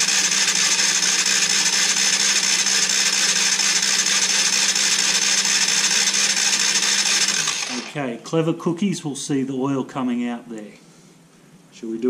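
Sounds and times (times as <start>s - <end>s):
electric starter motor whirring: 0.0s - 8.0s.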